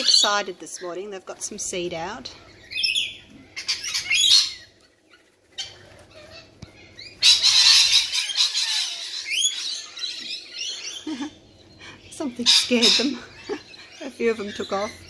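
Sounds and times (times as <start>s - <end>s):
parrots screeching and chattering: 0.0s - 15.0s
wings flapping: 3.6s - 8.2s.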